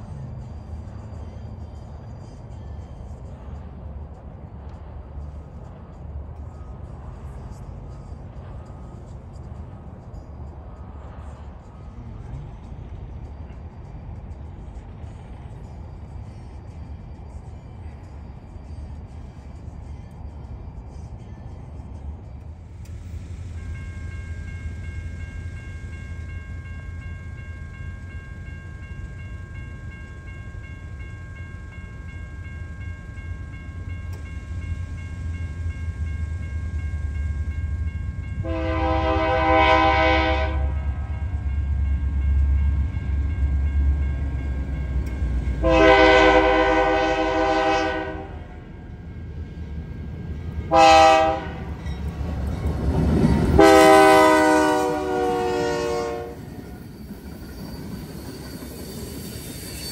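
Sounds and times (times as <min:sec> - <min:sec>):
locomotive low rumble: 0:00.0 - 0:59.9
crossing signal: 0:04.6 - 0:59.9
train air horn blasts: 0:38.4 - 0:41.0, 0:45.6 - 0:48.6, 0:50.7 - 0:51.8, 0:53.5 - 0:56.6.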